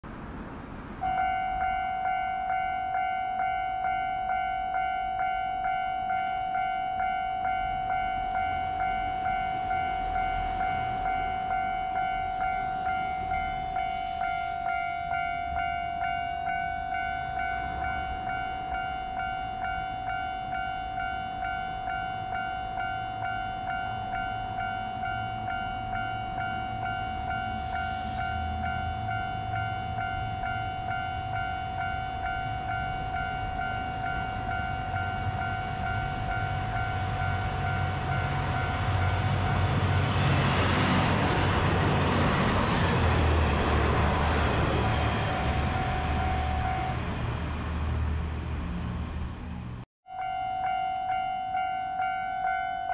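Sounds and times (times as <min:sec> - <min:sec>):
diesel railcar rumble: 0:00.0 - 0:50.8
level crossing bell ringing: 0:01.0 - 0:39.4, 0:50.1 - 0:52.9.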